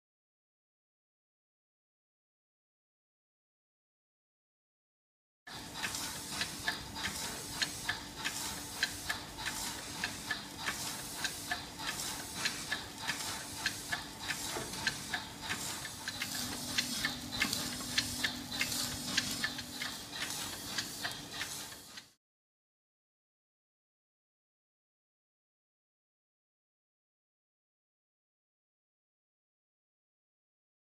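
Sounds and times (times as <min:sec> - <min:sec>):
valve gear ticking: 0:05.5 - 0:22.1.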